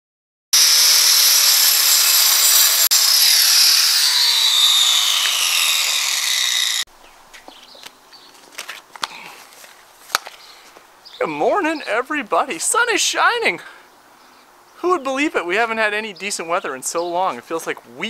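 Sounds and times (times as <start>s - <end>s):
angle grinder cutting stucco: 0.6s - 6.9s.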